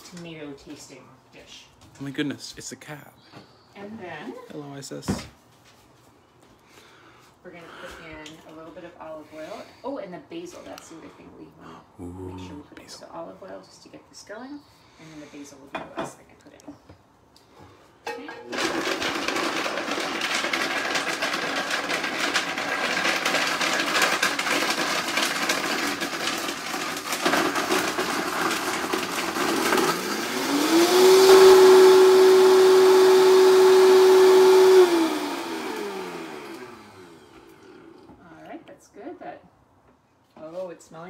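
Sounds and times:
blender motor whine: 18.5 - 38.2.

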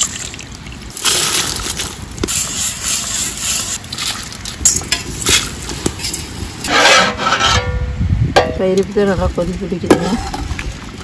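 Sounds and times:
wind buffeting microphone: 7.4 - 11.0.

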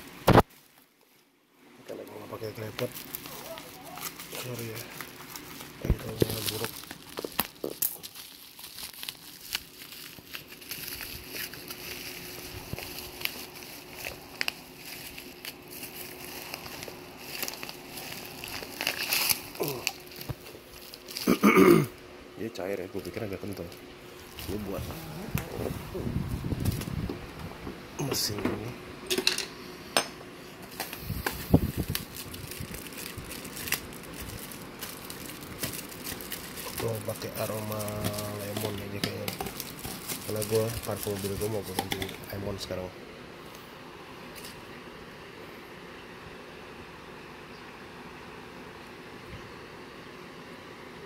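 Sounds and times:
plastic packaging crinkling: 2.3 - 21.7, 22.6 - 27.0, 30.6 - 42.8.

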